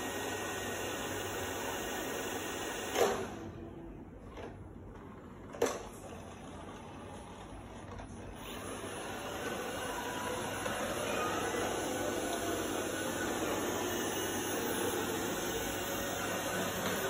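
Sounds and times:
robot vacuum whirring: 6.1 - 17.0.

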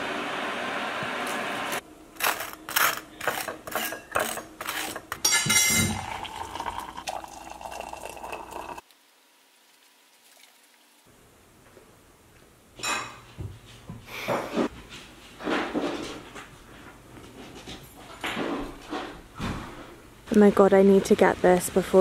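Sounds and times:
water pouring from kettle into mug: 5.9 - 8.8, 10.2 - 10.8.

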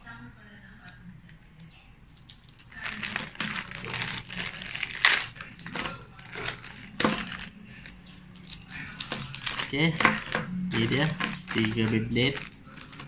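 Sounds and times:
plastic bags crinkling: 2.2 - 13.0.

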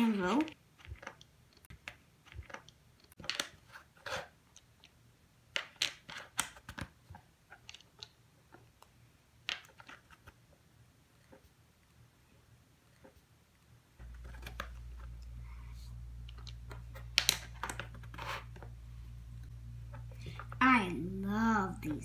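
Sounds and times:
plastic building blocks clicking: 0.1 - 10.5.

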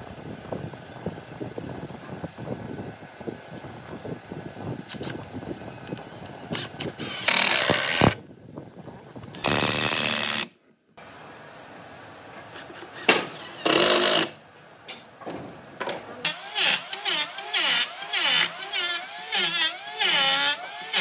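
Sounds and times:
drill driving screws into wood: 6.5 - 8.2, 9.4 - 10.5, 12.6 - 14.4, 16.3 - 21.0.

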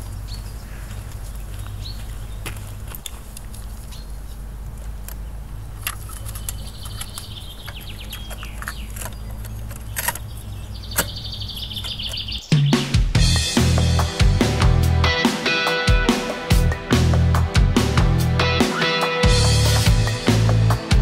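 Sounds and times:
birds chirping: 0.0 - 21.0
plastic cassette clicks and clacks: 5.8 - 10.3.

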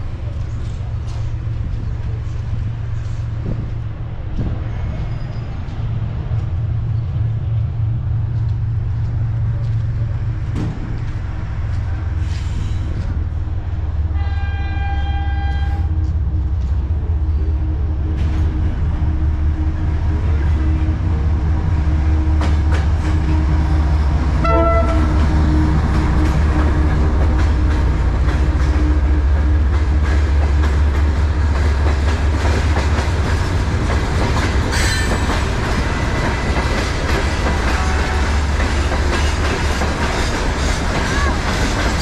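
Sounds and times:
diesel locomotive engine rumble: 0.0 - 42.0
train horn chord: 14.1 - 16.0, 24.4 - 27.6, 37.6 - 38.8.

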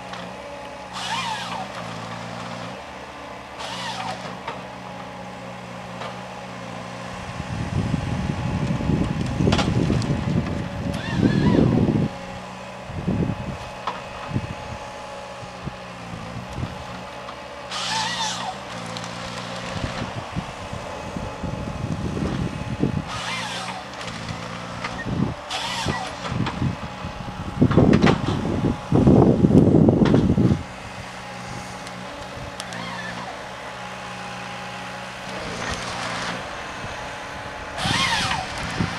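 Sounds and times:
diesel engine humming: 0.0 - 38.9
wind rumble on microphone: 7.1 - 16.9, 19.6 - 23.2, 24.3 - 32.6, 36.4 - 38.9.

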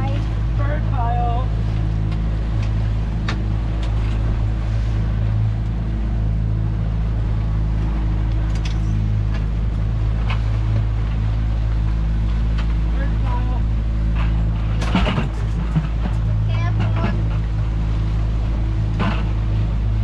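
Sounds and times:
outboard motors droning: 0.0 - 20.0.

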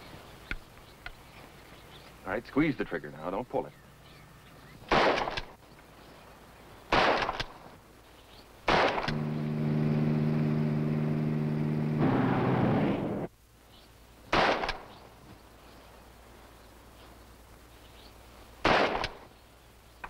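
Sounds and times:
rifle shots: 4.9 - 5.6, 6.9 - 7.6, 8.7 - 9.2, 14.3 - 14.9, 18.6 - 19.3.

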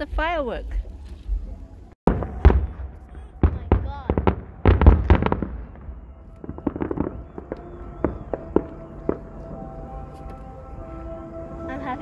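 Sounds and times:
small fireworks pops: 2.1 - 9.5
fireworks bursting with loud bangs: 2.1 - 10.1.

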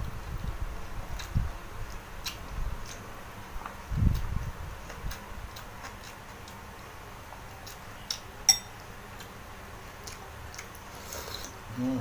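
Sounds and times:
chewing clicks: 1.2 - 3.0, 3.6 - 6.6, 10.0 - 11.6
metal spoon clinking ceramic bowl: 8.5 - 8.8.

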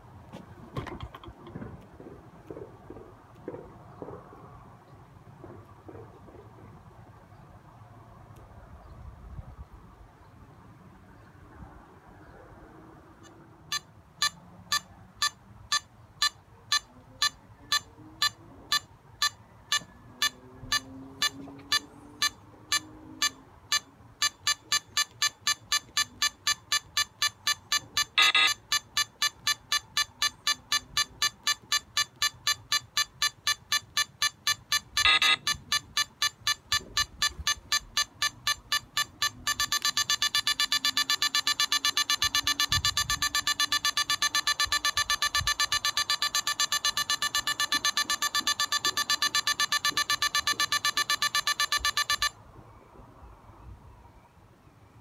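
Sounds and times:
countdown beeping: 13.7 - 52.3.

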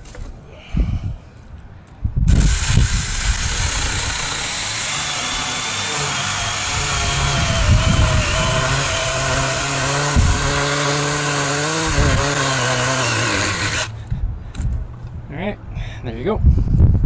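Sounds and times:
mini chainsaw cutting branch: 2.3 - 14.0.

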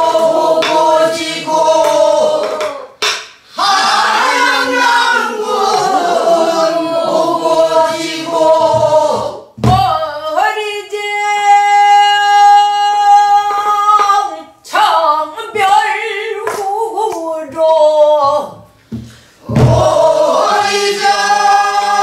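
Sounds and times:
woman singing: 9.8 - 18.6
barrel drum strokes: 18.9 - 20.2.

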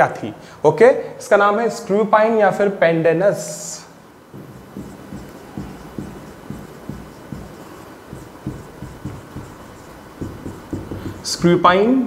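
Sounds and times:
marker pen writing on whiteboard: 4.3 - 11.6.

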